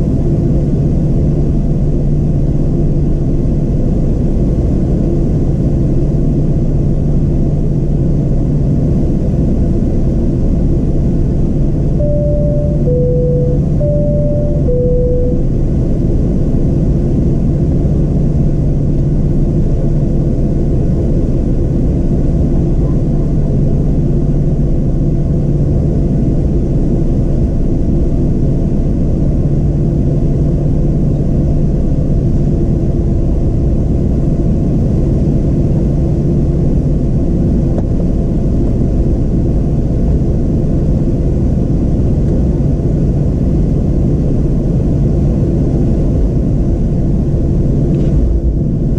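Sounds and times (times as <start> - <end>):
aircraft cabin engine rumble: 0.0 - 48.9
constant low hum: 0.0 - 48.9
high-low cabin chime: 12.0 - 15.7.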